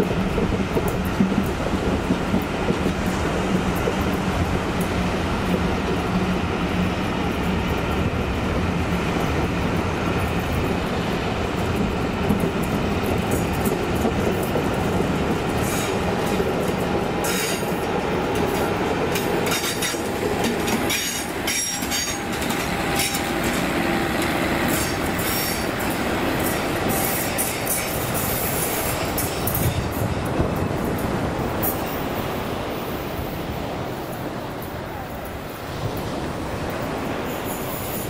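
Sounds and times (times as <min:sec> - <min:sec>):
wheels clicking over rail joints: 0:00.0 - 0:32.7
diesel locomotive passing: 0:00.0 - 0:38.0
train wheels rumbling: 0:00.0 - 0:38.0.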